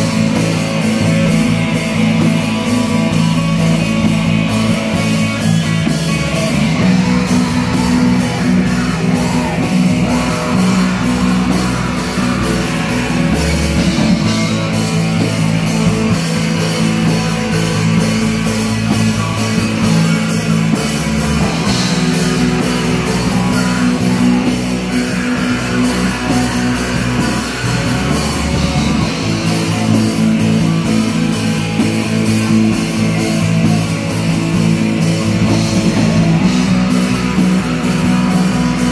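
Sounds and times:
heavy metal band playing live: 0:00.0 - 0:38.9.

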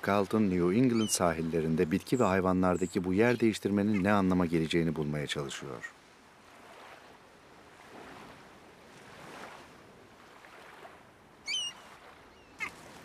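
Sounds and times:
water lapping: 0:00.0 - 0:13.0
wind: 0:00.0 - 0:13.0
high bird call: 0:00.9 - 0:01.2, 0:11.4 - 0:12.8.

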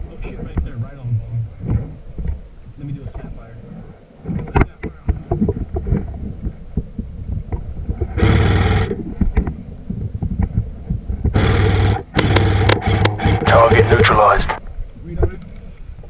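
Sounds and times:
mechanical buzz: 0:08.2 - 0:09.0, 0:11.4 - 0:14.2
irregular knocks and clicks: 0:09.2 - 0:14.1
airsoft gun firing rapid shots: 0:11.4 - 0:13.1.

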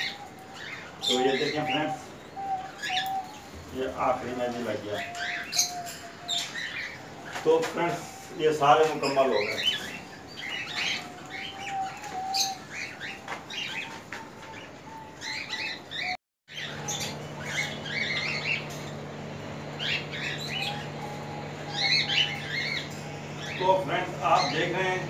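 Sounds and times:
caged birds chirping: 0:00.0 - 0:25.0
low steady hum: 0:16.5 - 0:25.0.

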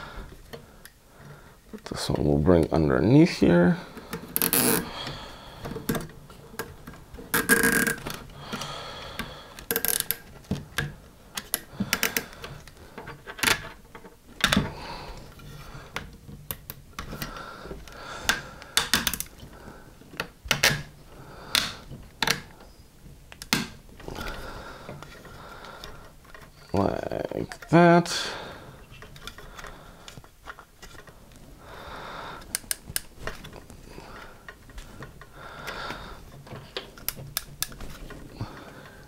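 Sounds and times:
plastic parts rattling: 0:03.9 - 0:27.9, 0:28.7 - 0:31.5, 0:32.4 - 0:39.0
zip ties clicking: 0:04.1 - 0:04.9.

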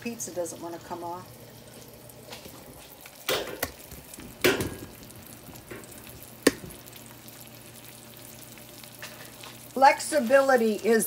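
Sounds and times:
utensil knocking on frying pan: 0:03.2 - 0:05.0, 0:05.7 - 0:06.8.

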